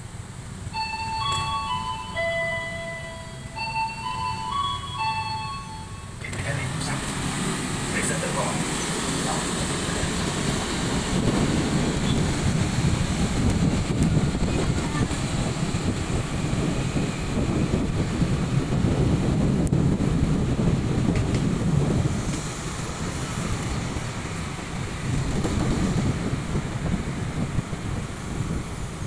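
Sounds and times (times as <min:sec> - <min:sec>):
motorcycle engine and road noise: 0:06.2 - 0:29.0
wind rushing over microphone: 0:07.0 - 0:29.0.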